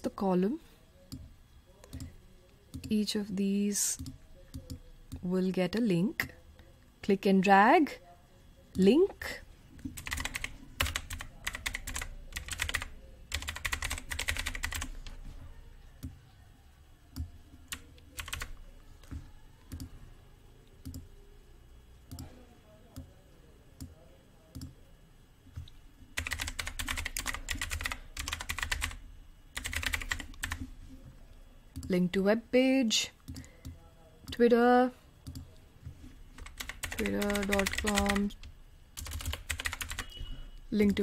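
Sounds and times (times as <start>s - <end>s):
computer keyboard typing: 9.8s - 15.2s, 17.1s - 19.9s, 20.8s - 21.1s, 22.1s - 22.3s, 25.5s - 30.7s, 36.3s - 40.2s.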